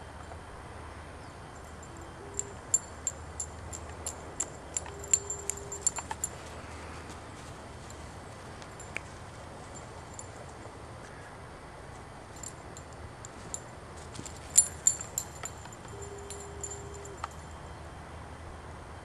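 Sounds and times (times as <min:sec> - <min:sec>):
faint low hum: 0:00.0 - 0:19.0
metal collar tag jingling: 0:01.5 - 0:06.6, 0:07.8 - 0:10.7, 0:12.3 - 0:17.7.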